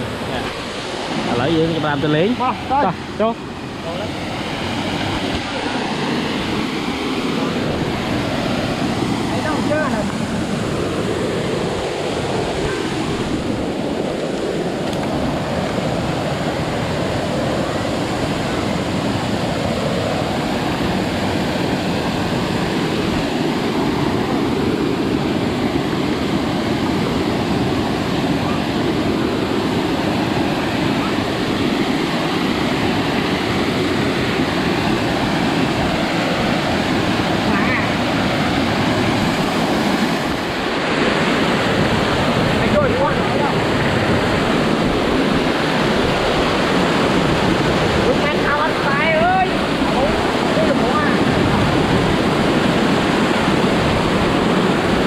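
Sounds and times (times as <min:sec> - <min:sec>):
steady rushing noise: 0:00.0 - 0:55.0.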